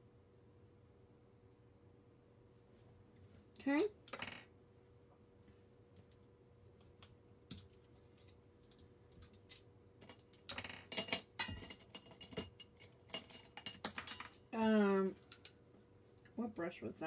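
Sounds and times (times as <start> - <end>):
cosmetic items clicking and clattering: 7.5 - 15.6.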